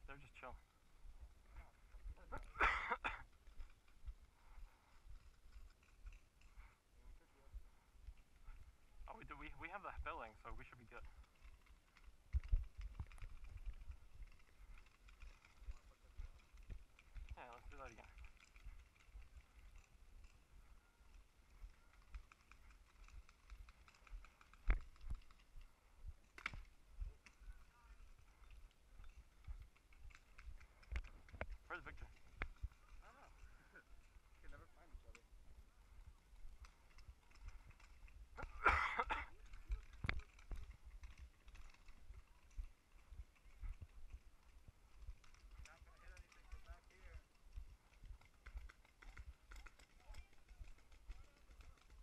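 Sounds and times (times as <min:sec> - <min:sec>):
rustling: 0:03.2 - 0:52.0.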